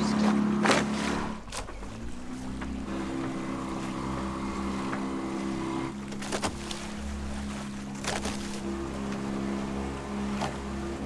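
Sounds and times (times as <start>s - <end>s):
outboard motor running: 0.0s - 11.0s.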